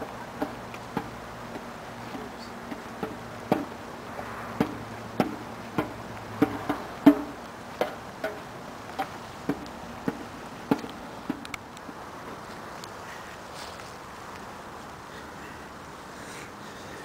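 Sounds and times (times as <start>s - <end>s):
footsteps crunching on snow: 12.4s - 14.3s.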